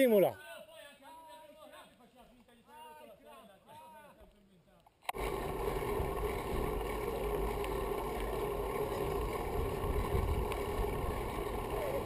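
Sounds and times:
bike rolling on tarmac: 5.1 - 12.0
wind rumble on microphone: 8.8 - 12.0.

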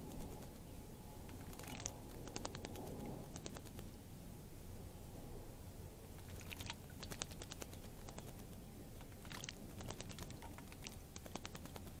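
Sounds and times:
bird splashing in water: 1.4 - 3.7, 6.2 - 12.0.

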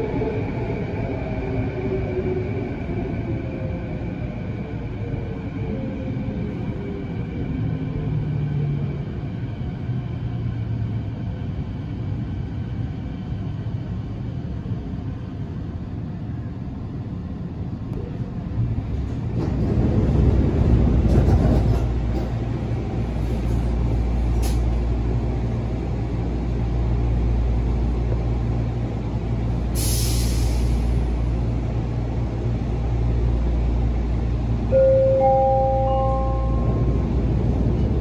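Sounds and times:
train car low hum: 0.0 - 38.0
air hiss: 29.8 - 31.0
rising chime notes: 34.8 - 37.0.

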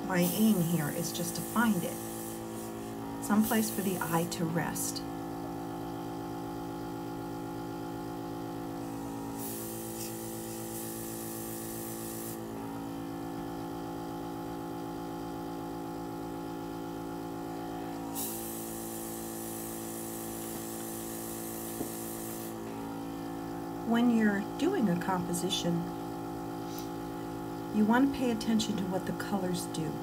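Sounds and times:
airbrush hissing: 0.0 - 5.0, 8.8 - 12.5, 18.0 - 22.6
compressor humming: 0.0 - 30.0.

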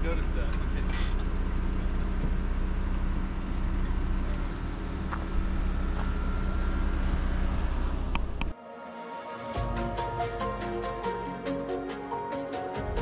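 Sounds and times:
engine running at low speed: 0.0 - 8.6.

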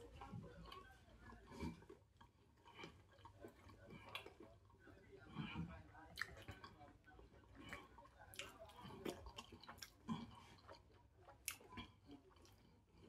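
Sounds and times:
man chewing: 0.0 - 6.8, 7.4 - 13.0
soft wet smacks: 0.0 - 13.0.

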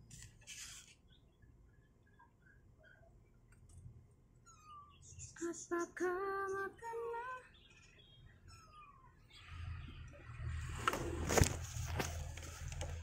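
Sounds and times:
rustling and handling noise: 0.0 - 1.2, 10.7 - 13.0.

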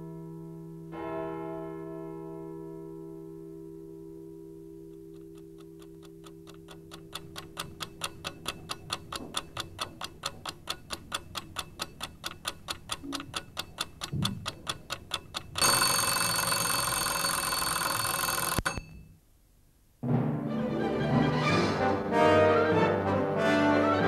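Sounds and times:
clock ticking: 4.9 - 19.1
ringing alarm bell: 15.6 - 19.0.

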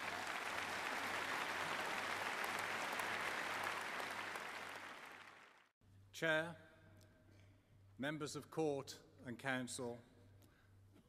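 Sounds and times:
large audience applauding: 0.0 - 5.7.

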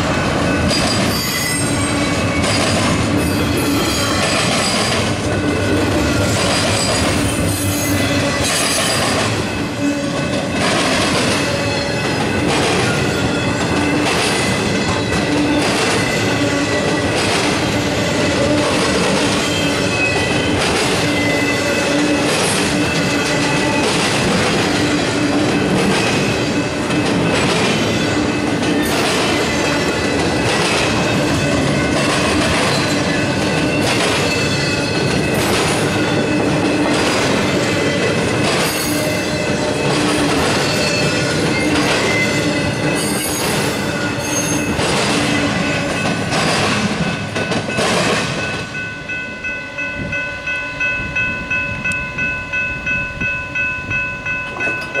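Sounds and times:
crossing bell ringing: 0.0 - 55.0
train rumbling past: 0.0 - 55.0
wheels clattering over rail joints: 22.2 - 48.8.

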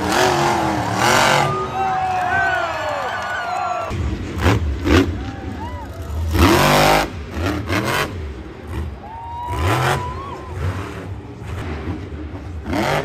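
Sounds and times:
truck engine revving hard: 0.0 - 1.9, 3.9 - 5.3, 6.0 - 13.0.

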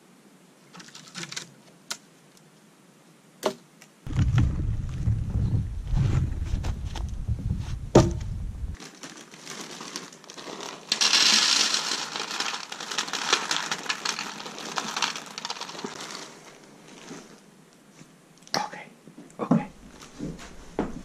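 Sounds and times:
wind on the microphone: 4.1 - 8.8
sharp knock: 7.9 - 8.4
plastic bag crinkling: 8.7 - 17.4
dry kibble rattling into a bowl: 8.8 - 17.4.

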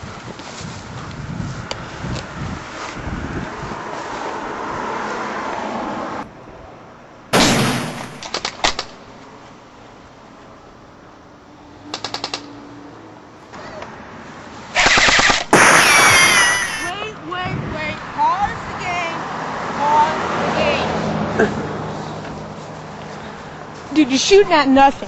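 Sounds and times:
airsoft rifle automatic bursts: 14.8 - 16.9.

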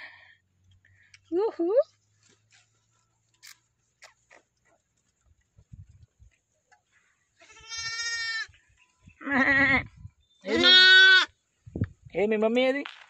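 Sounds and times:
lambs bleating: 7.4 - 8.5, 10.5 - 11.3.

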